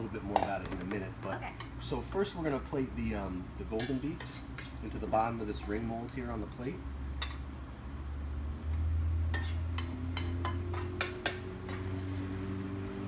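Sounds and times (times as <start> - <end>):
metal spoon scraping metal bowl: 3.7 - 5.6, 9.3 - 12.4.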